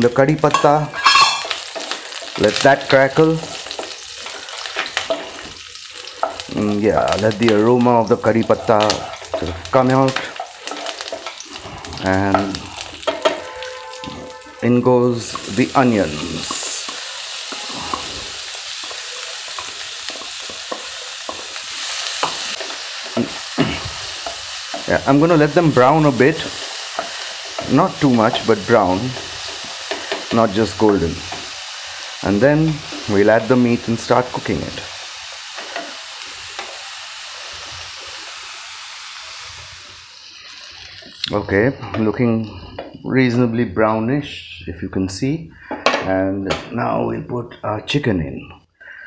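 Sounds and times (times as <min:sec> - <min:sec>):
onions sizzling in hot oil: 0:00.0 - 0:41.8
wooden spatula scraping: 0:07.1 - 0:31.6.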